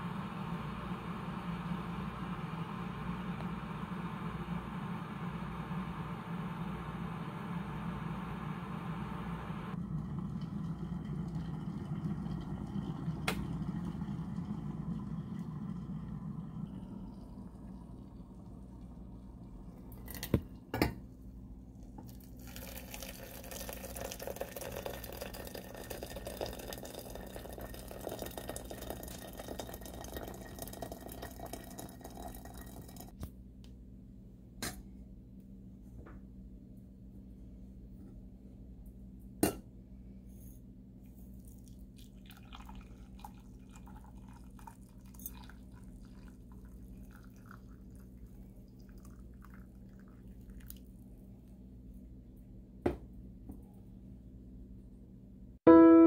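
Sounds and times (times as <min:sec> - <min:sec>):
water pouring into teapot: 0:09.7 - 0:20.4, 0:22.0 - 0:33.2, 0:41.4 - 0:51.1
tea trickling into a mug: 0:22.0 - 0:33.2, 0:41.4 - 0:51.1.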